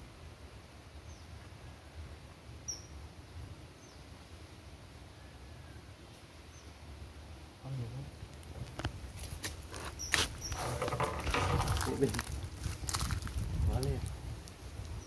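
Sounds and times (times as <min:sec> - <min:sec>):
small bird chirping: 0:02.7 - 0:03.0, 0:09.9 - 0:10.7.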